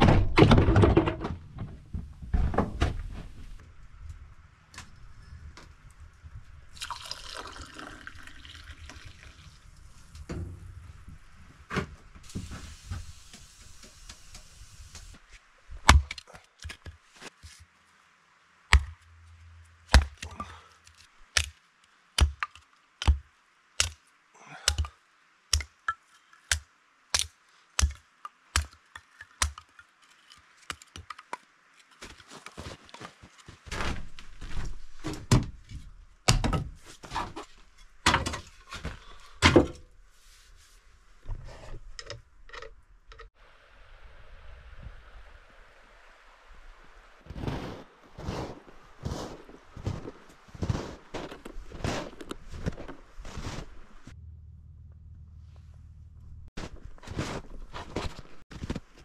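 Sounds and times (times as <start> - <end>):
soft hissing rustle: 9.2 - 15.7, 40.0 - 41.8
sharp chopping: 19.9 - 20.3.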